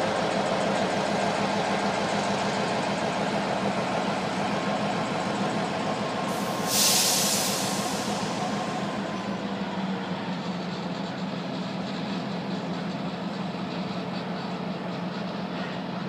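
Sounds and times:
locomotive diesel engine drone: 0.0 - 16.0
air brake hiss: 6.3 - 9.1.

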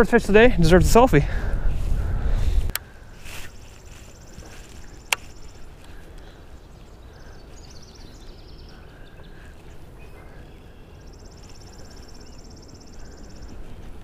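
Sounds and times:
wind and water rumble: 0.0 - 14.0
bird chirping: 2.9 - 14.0.

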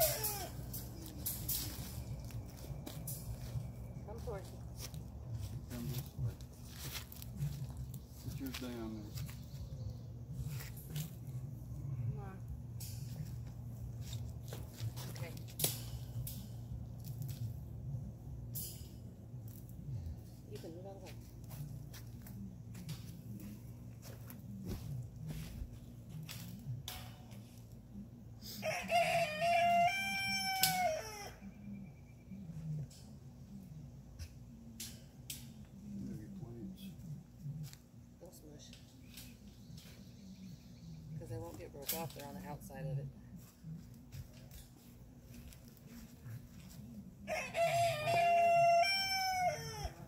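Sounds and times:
rooster crowing: 28.4 - 31.6, 47.2 - 50.0.

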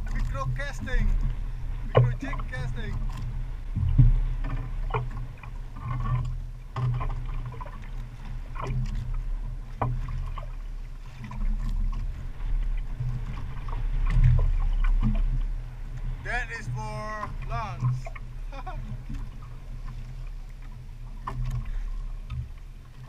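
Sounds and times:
water slapping boat: 0.0 - 23.0
wind buffeting: 12.1 - 20.4.

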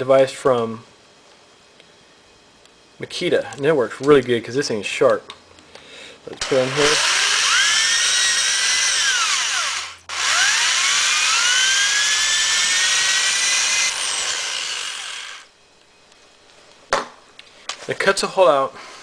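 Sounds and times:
electric drill whine: 6.4 - 15.6.

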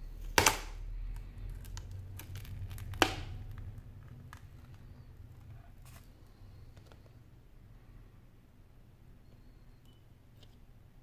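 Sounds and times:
tablet housing snapping apart: 0.3 - 0.8.

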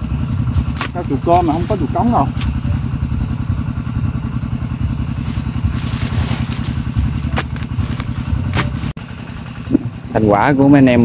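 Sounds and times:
small engine running: 0.0 - 11.0
rustling crackle: 5.0 - 9.0.

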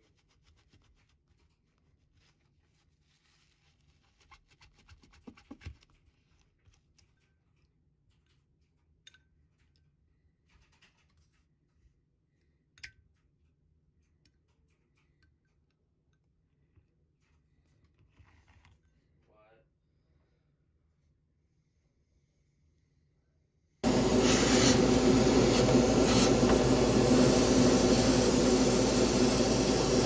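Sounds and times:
paper towel rustling on metal: 0.0 - 6.8.

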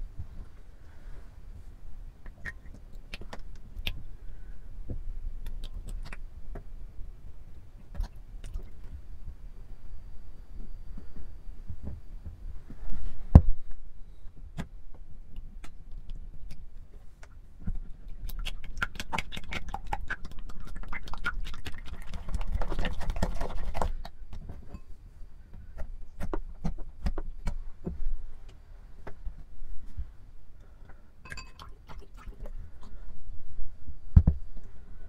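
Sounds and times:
spatula stirring sticky slime: 18.1 - 24.2.

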